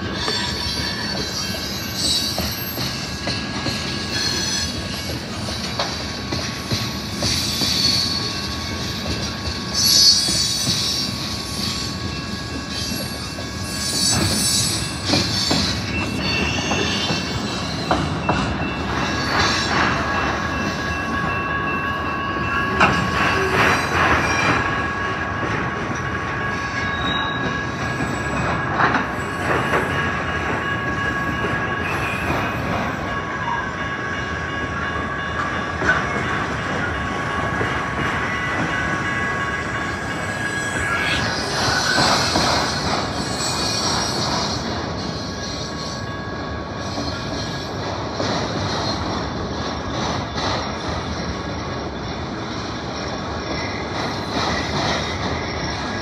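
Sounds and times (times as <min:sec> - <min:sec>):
train wheels rumbling on rail: 0:00.0 - 0:56.0
wheels squealing: 0:39.8 - 0:47.7.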